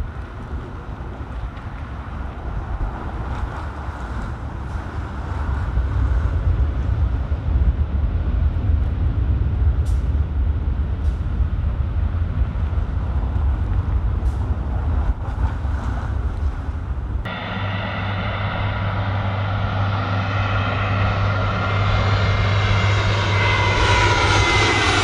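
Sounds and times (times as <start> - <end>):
buses driving past: 9.8 - 24.4.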